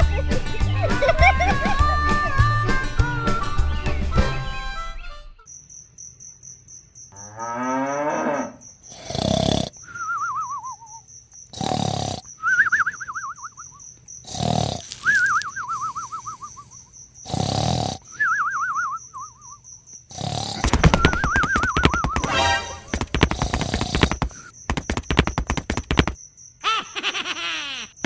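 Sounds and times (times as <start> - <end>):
night insects chirping: 5.4 - 28.0
cartoon snoring: 8.9 - 9.8, 11.5 - 12.3, 14.2 - 15.2, 17.2 - 18.1, 20.1 - 24.5.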